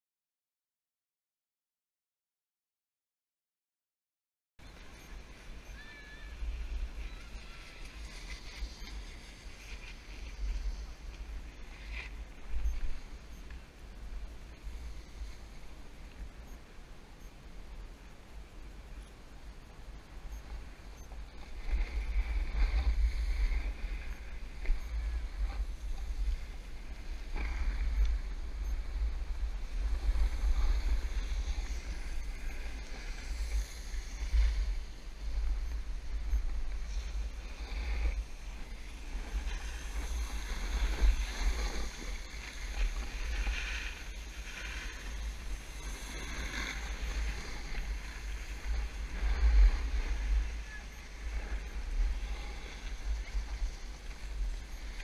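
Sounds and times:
snowboard scraping over snow: 0:06.5 - 0:13.2, 0:21.4 - 0:55.0.

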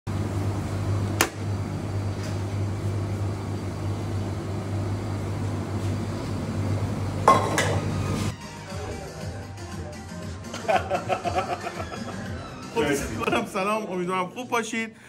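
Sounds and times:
kitchen hum: 0:00.1 - 0:08.4
dishes clattering: 0:07.2 - 0:07.9.

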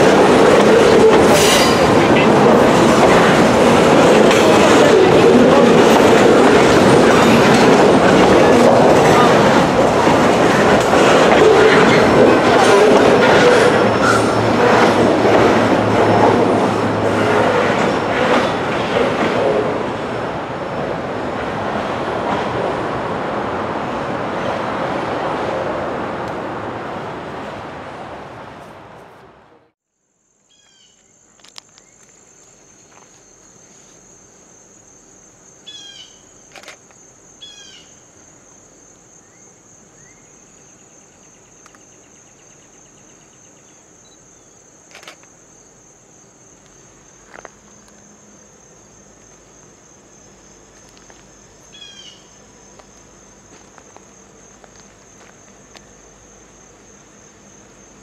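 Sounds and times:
train wheels clattering over rails: 0:00.0 - 0:20.1
high insect drone: 0:30.1 - 0:58.0.

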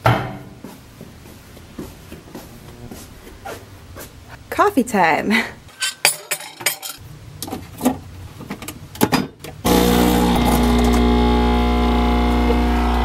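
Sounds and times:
coffee machine pump buzzing: 0:09.7 - 0:13.0.

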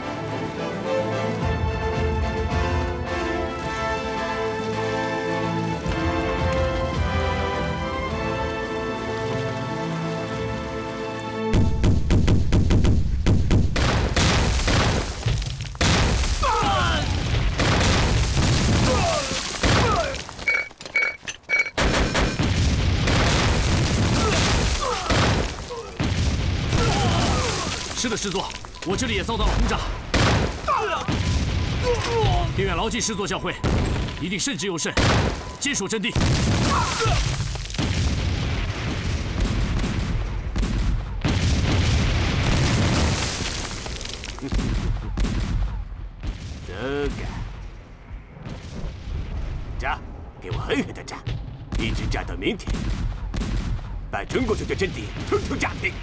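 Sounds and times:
field guns firing: 0:11.5 - 0:20.4, 0:21.8 - 0:28.8, 0:29.4 - 0:32.6, 0:35.0 - 0:47.6, 0:51.7 - 0:56.0
shells exploding: 0:11.5 - 0:20.7, 0:21.7 - 0:32.8, 0:33.6 - 0:34.4, 0:35.0 - 0:47.8, 0:51.3 - 0:56.0.

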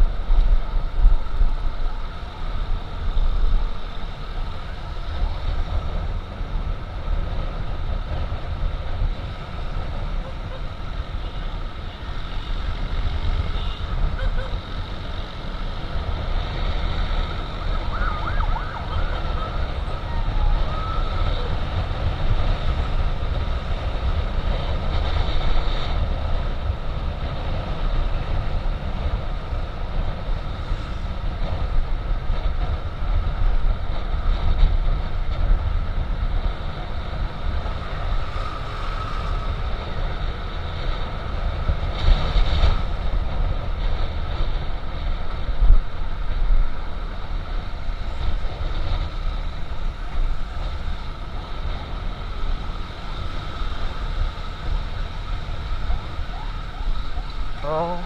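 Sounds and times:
wind rushing over microphone: 0:00.0 - 0:58.0
motor scooter running: 0:02.8 - 0:32.4
emergency siren wailing: 0:17.3 - 0:22.0, 0:55.8 - 0:58.0.

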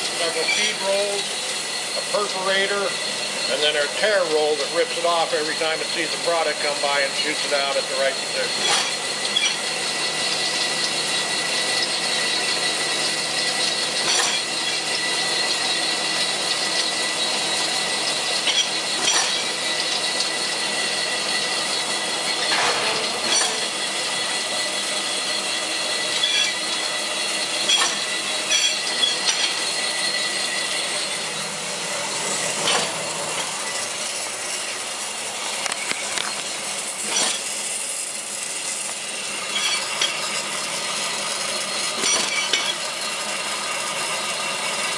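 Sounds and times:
machine whining: 0:00.0 - 0:44.9.

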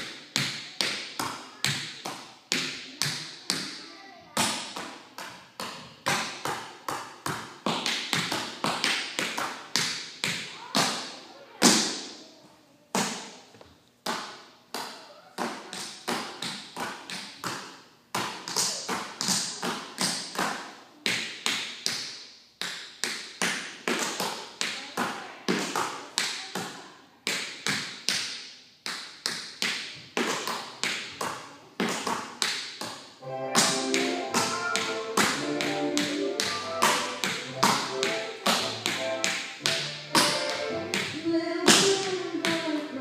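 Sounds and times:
tap shoes on wooden floor: 0:30.2 - 0:42.7.

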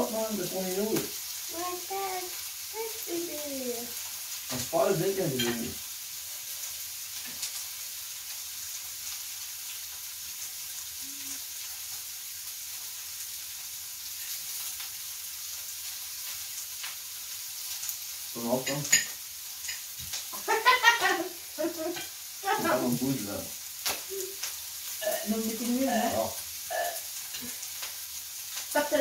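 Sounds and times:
faint hiss: 0:00.0 - 0:29.0
person speaking: 0:22.4 - 0:23.5.

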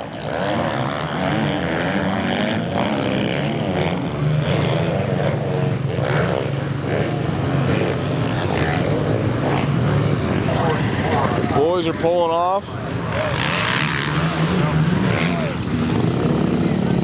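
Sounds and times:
motocross bike engines revving: 0:00.0 - 0:17.0.

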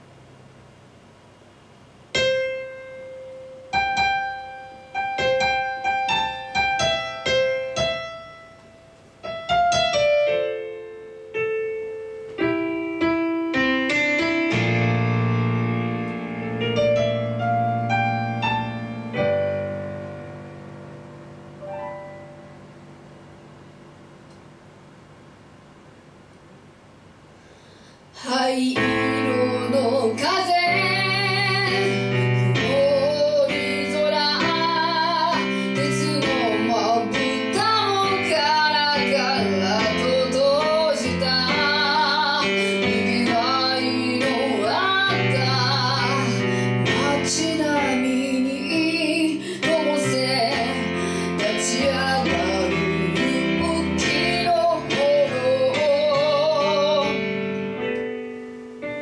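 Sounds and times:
electronic keyboard chords: 0:02.2 - 0:24.7, 0:49.6 - 0:59.0
woman singing into a microphone: 0:28.2 - 0:57.3.

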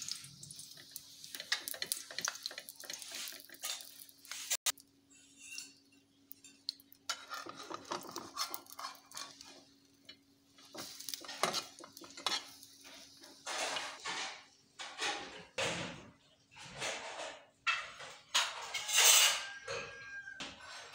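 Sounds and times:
utensil scraping a metal pan: 0:01.2 - 0:05.9, 0:07.1 - 0:09.7, 0:10.7 - 0:14.3, 0:18.4 - 0:20.2.

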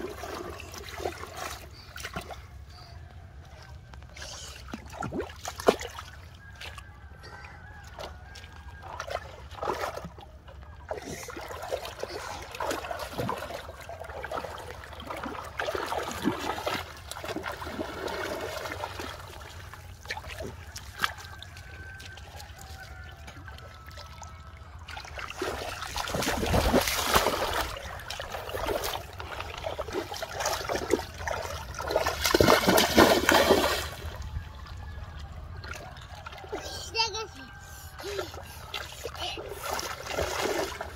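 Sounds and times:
river water splashing: 0:00.0 - 0:40.9.

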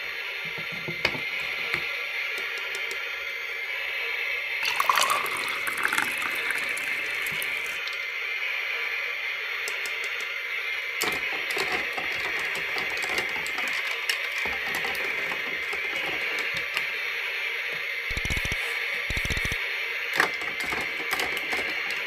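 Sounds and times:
plastic toys knocking in a pot: 0:11.0 - 0:16.7.

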